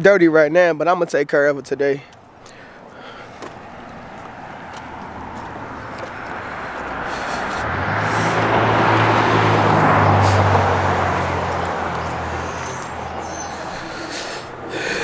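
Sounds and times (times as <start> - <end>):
vehicle driving past: 3.3 - 15.0.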